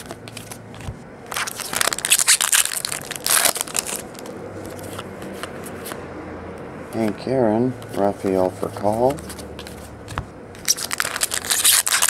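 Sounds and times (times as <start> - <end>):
wrapper crinkling and tearing: 1.3 - 5.0, 10.6 - 12.0.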